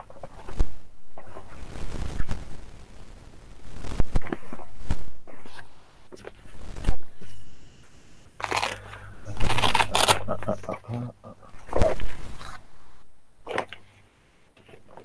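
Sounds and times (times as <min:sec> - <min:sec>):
crunching rustles: 0:00.0 - 0:07.5, 0:08.3 - 0:10.8.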